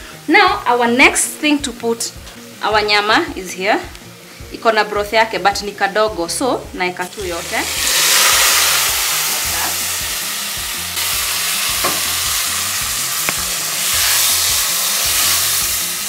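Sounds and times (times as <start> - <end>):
meat sizzling in oil: 7.0 - 16.0.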